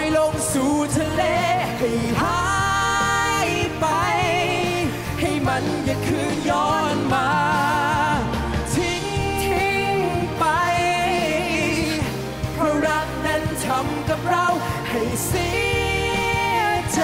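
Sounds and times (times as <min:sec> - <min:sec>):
man and woman singing duet: 0:00.0 - 0:17.0
pop backing music: 0:00.0 - 0:17.0.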